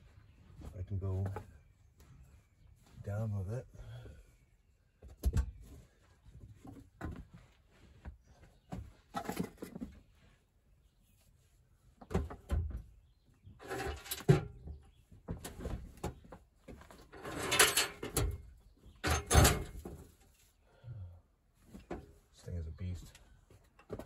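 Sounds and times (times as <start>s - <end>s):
metal parts clanking and scraping: 13.6s - 14.5s, 17.0s - 18.4s, 19.0s - 19.9s.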